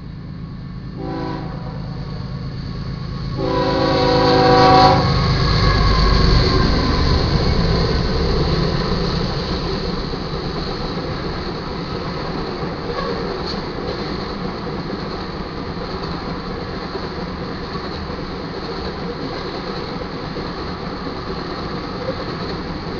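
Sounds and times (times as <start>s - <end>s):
locomotive passing: 0.0s - 22.9s
locomotive air horn: 1.0s - 2.0s, 3.4s - 5.2s.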